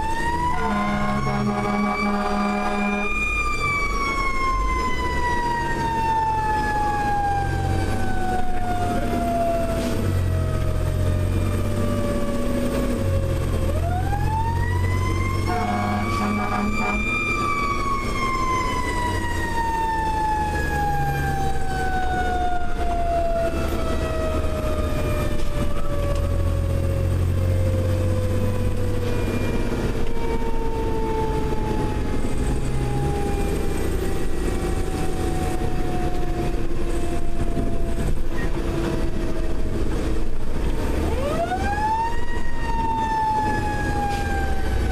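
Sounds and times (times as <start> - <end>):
mechanical siren wailing: 0.0 - 44.9
truck engine drone: 0.0 - 44.9
air horn blasts: 0.5 - 3.2, 15.4 - 17.2.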